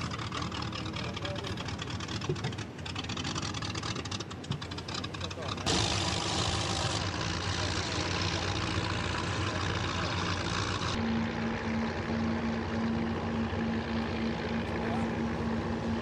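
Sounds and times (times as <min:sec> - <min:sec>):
engines running: 0:00.0 - 0:16.0
steady low hum: 0:05.6 - 0:16.0.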